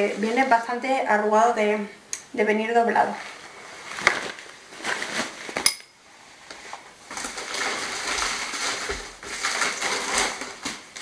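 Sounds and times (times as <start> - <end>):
packaging crinkling and rustling: 3.2 - 5.7, 6.3 - 11.0.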